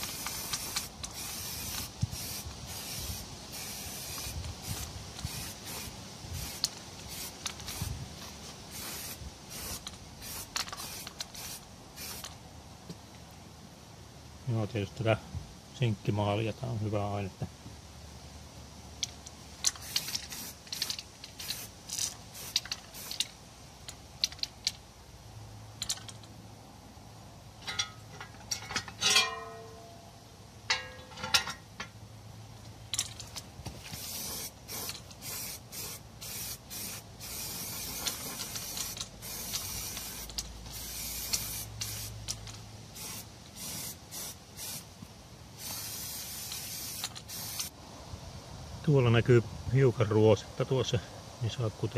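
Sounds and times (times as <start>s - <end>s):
spray paint can hissing: 0.0s - 12.4s, 19.6s - 23.4s, 33.8s - 44.9s, 45.6s - 47.8s
ringing metal knocks: 27.6s - 30.1s.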